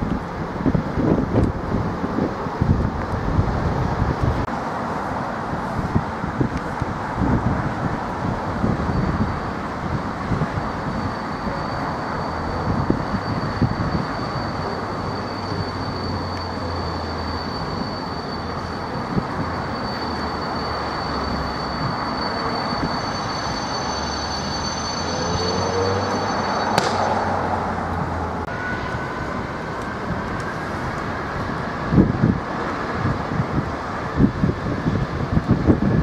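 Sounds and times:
high-pitched whine: 0:00.0 - 0:36.0
diesel locomotive engine throbbing: 0:05.4 - 0:36.0
sharp click: 0:26.7 - 0:27.2.

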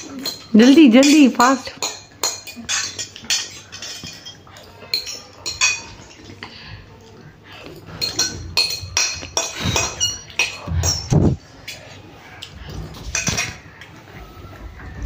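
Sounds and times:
forks clinking on plates: 0:00.0 - 0:06.5, 0:07.5 - 0:12.0, 0:12.9 - 0:13.9.

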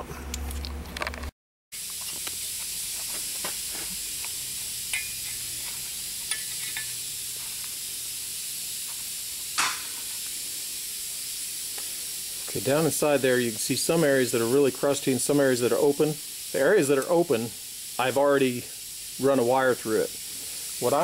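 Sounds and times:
steady hiss: 0:01.8 - 0:21.0
metal parts clicking and tapping: 0:04.9 - 0:07.0.

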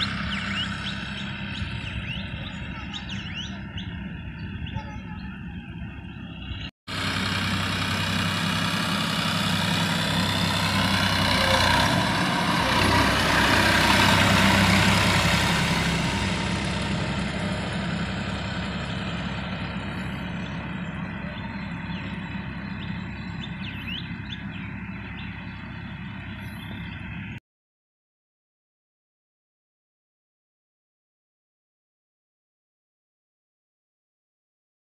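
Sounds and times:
tractor diesel engine running: 0:00.0 - 0:27.4.

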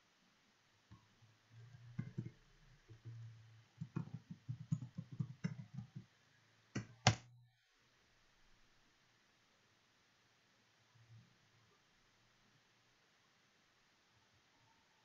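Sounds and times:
faint low hum: 0:00.0 - 0:15.0
computer keyboard typing: 0:01.6 - 0:06.1.

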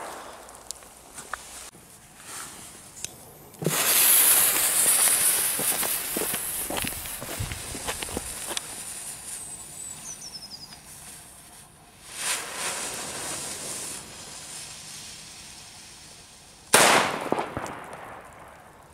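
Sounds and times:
firecracker bang: 0:00.0 - 0:00.8, 0:03.6 - 0:08.5, 0:16.7 - 0:18.6
firecracker fuse hissing: 0:00.0 - 0:03.0, 0:03.6 - 0:17.2.

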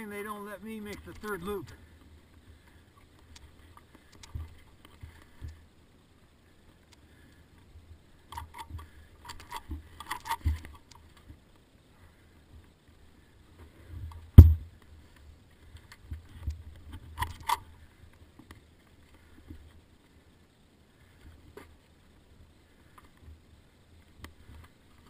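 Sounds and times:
dirt bike knocking against rocks: 0:14.4 - 0:14.7.

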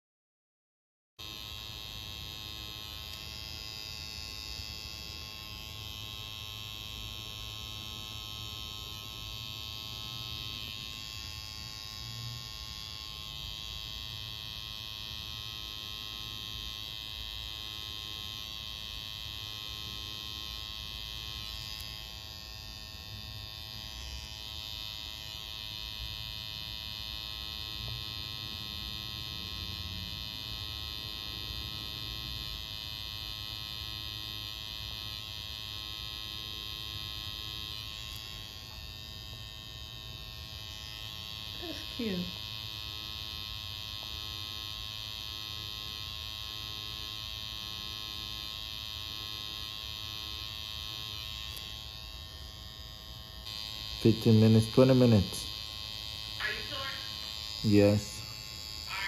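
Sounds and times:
tattoo machine buzzing: 0:01.2 - 0:59.0.

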